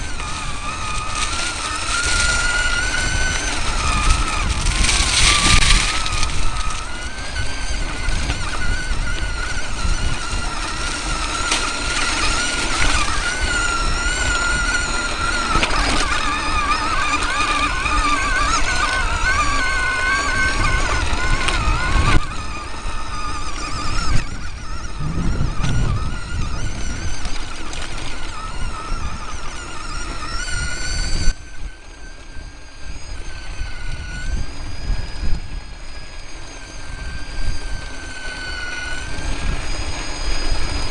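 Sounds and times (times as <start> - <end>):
vehicle rumbling and rattling: 0.0 - 31.4
electric motor whining: 0.0 - 40.9.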